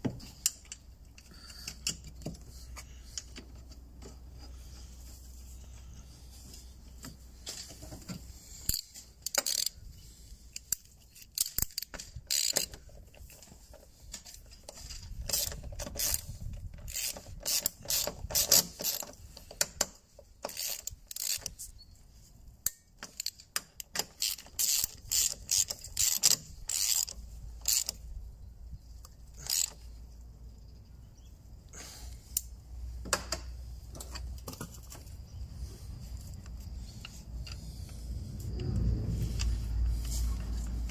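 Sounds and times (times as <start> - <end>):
socket ratchet clicking: 8.7 - 9.8, 10.5 - 12.8, 16.8 - 19.7, 20.4 - 21.6, 22.7 - 28.0, 29.4 - 29.8.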